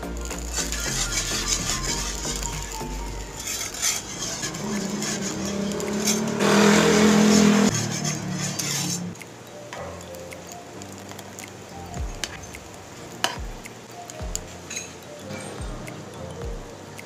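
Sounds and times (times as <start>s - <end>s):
whisk scraping metal pan: 0.3s - 9.2s.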